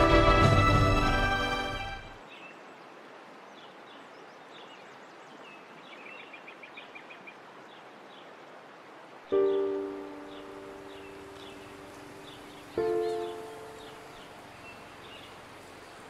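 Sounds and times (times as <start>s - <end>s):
music with sustained chord: 0.0s - 2.2s, 9.4s - 16.0s
small birds chirping: 9.3s - 16.0s.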